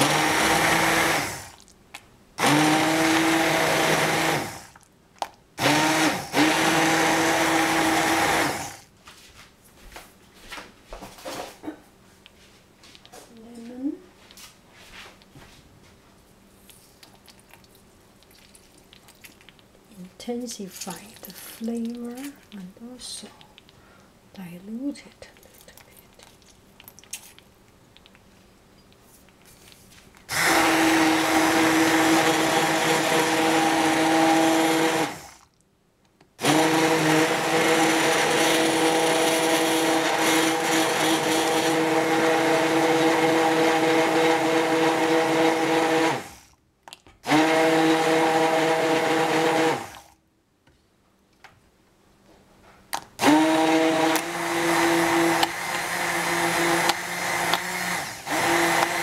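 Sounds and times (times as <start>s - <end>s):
immersion blender running: 0.0s - 1.6s, 2.4s - 4.8s, 5.6s - 8.8s, 30.3s - 35.4s, 36.4s - 46.4s, 47.2s - 50.1s, 53.2s - 59.0s.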